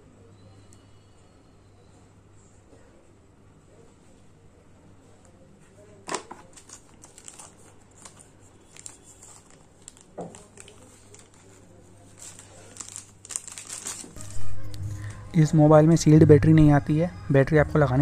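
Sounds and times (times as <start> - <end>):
plastic sleeve crinkling: 6.0 - 15.2.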